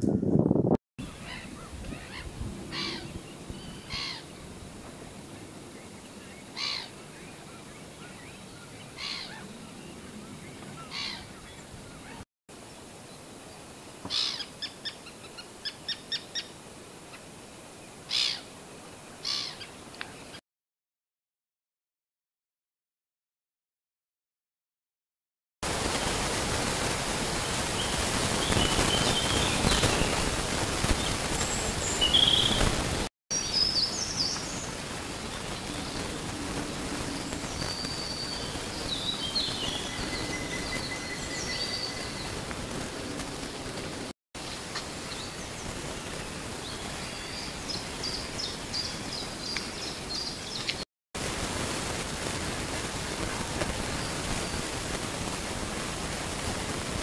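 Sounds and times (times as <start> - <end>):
steady marsh hiss: 25.7 - 50.6.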